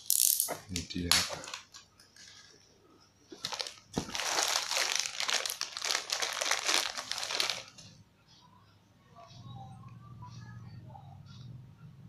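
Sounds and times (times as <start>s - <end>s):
plastic clips shifting: 0.7s - 2.5s
plastic bag crinkling: 0.7s - 2.7s, 3.4s - 7.8s.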